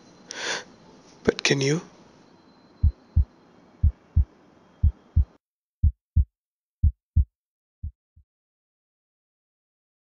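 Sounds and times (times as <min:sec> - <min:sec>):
faint background hiss: 0:00.0 - 0:05.4
heartbeat thumps: 0:02.8 - 0:08.0.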